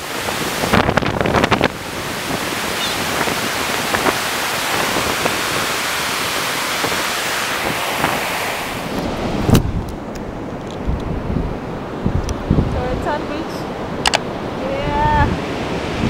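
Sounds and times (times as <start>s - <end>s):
surf breaking on beach: 0.0s - 10.5s
wind buffeting microphone: 0.0s - 16.0s.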